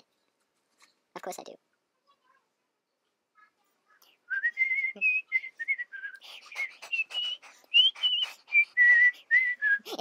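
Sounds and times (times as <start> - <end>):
person whistling a tune: 4.3 - 9.9.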